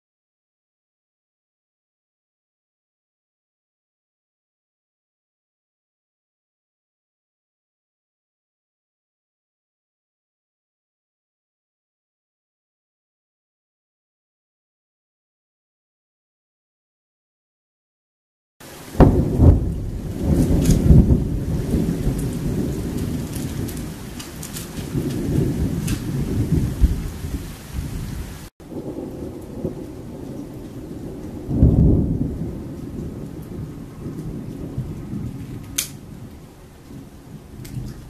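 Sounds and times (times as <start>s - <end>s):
rain falling: 18.6s - 38.0s
thunder rumbling: 18.6s - 38.0s.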